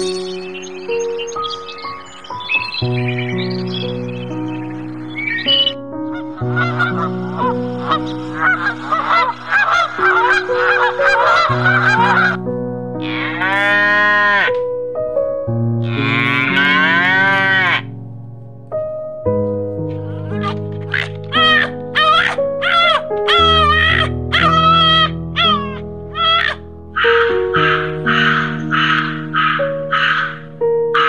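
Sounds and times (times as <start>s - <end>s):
background music with held notes: 0.0s - 31.0s
goose honking: 6.2s - 12.4s, 13.0s - 14.6s, 15.8s - 17.9s, 20.4s - 30.4s
cow mooing: 13.0s - 14.6s, 15.8s - 17.9s.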